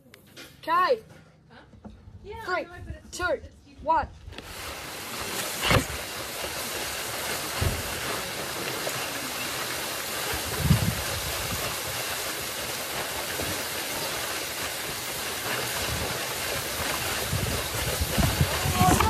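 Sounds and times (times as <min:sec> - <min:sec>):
wind rushing on microphone: 0:10.4 - 0:11.7, 0:16.7 - 0:19.0.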